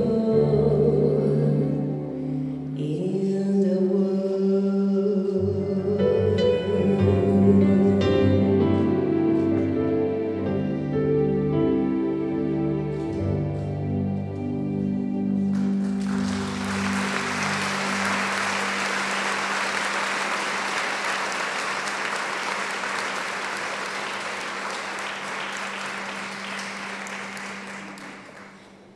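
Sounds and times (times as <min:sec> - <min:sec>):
keyboard chord: 0:05.4 - 0:22.8
audience applauding: 0:15.5 - 0:28.9.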